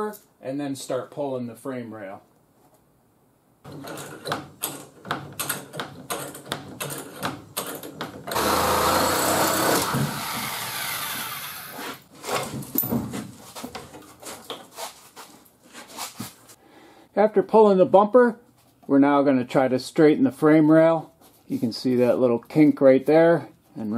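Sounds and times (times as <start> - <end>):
impact wrench hammering: 3.7 - 11.5.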